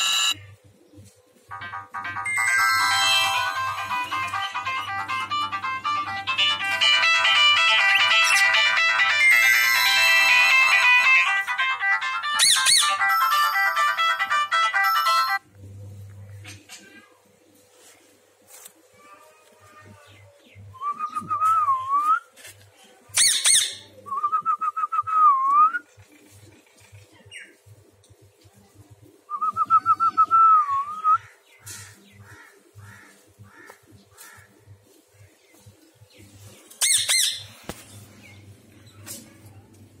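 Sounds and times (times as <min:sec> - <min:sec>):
parakeet squawking: 0:00.0 - 0:00.4, 0:07.8 - 0:08.8, 0:12.4 - 0:13.1, 0:36.8 - 0:37.6
parakeet warbling trill: 0:00.0 - 0:00.4, 0:07.8 - 0:10.5, 0:12.4 - 0:13.1.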